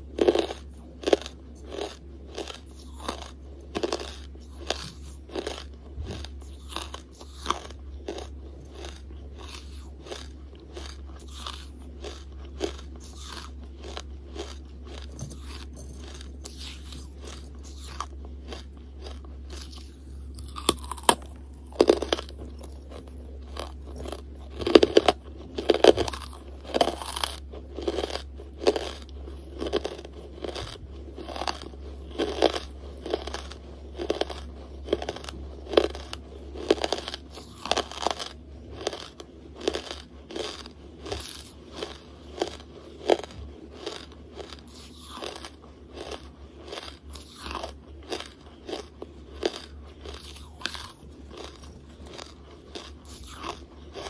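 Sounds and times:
charcoal crunching being chewed: 0.0 - 54.0.

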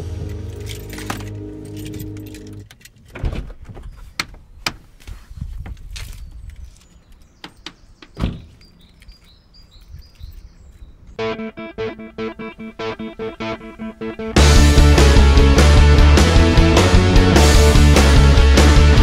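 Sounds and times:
low music drone: 0.0 - 2.6, 11.2 - 19.0
birds chirping faintly: 3.7 - 14.4
car door shutting thud: 8.2 - 8.5.

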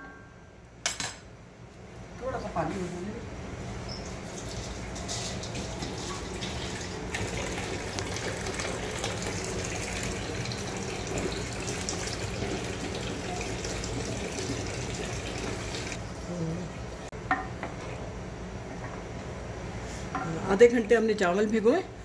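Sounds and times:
broth bubbling in a pot: 4.1 - 16.0.

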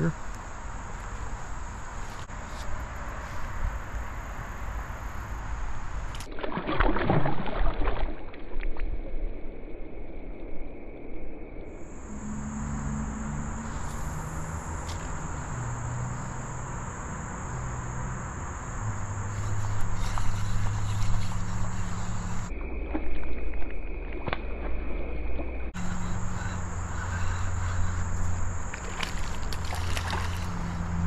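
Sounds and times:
insects buzzing: 0.0 - 6.1, 11.7 - 22.5, 25.8 - 31.0
low hum shifting in pitch: 11.8 - 22.9, 25.7 - 31.0.

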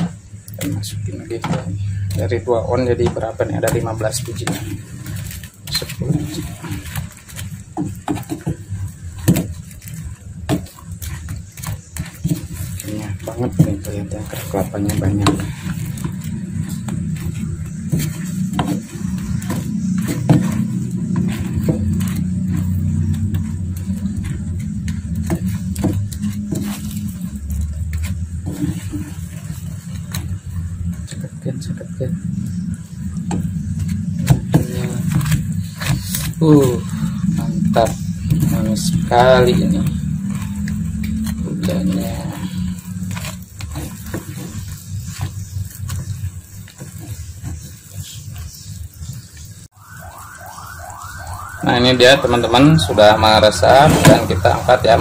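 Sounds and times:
spatula scraping frying pan: 0.0 - 31.1, 32.1 - 49.7
low engine-like rumble: 0.0 - 55.0
syrup bubbling: 0.0 - 55.0
rising electronic chirp: 49.7 - 55.0.

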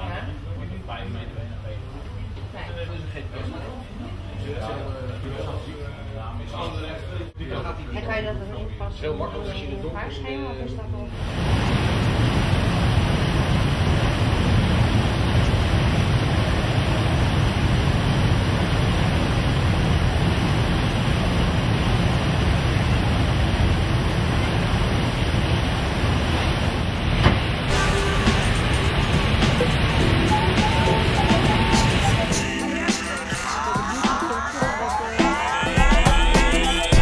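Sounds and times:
sea washing: 11.2 - 33.2.

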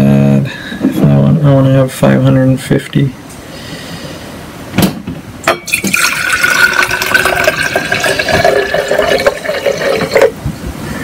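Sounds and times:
liquid pouring into glass jar: 5.5 - 10.4.

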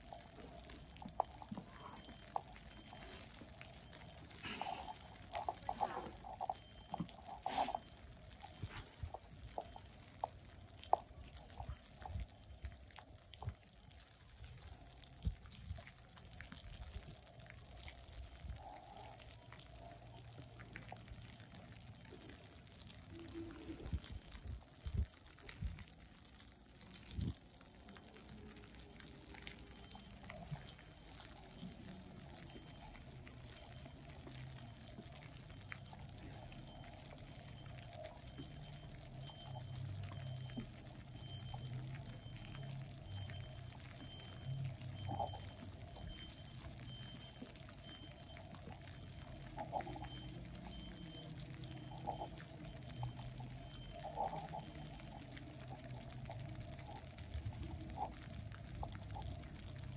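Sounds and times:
distant traffic rumble: 0.0 - 14.0, 25.8 - 59.9.

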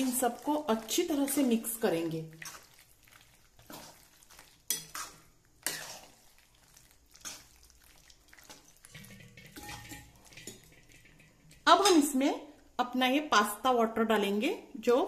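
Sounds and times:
spatula scraping metal pan: 4.6 - 6.2, 8.4 - 11.9.

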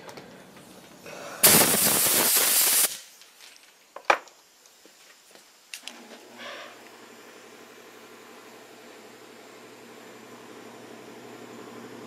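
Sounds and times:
compressed air burst: 1.1 - 3.1.

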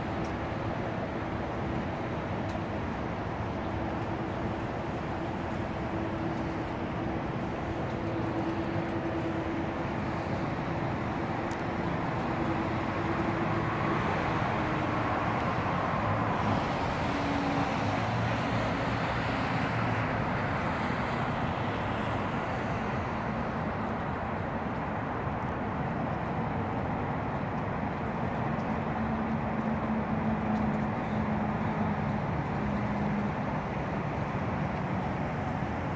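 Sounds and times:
car passing on wet road: 0.0 - 35.9
tyre hiss on wet road: 3.7 - 24.0.

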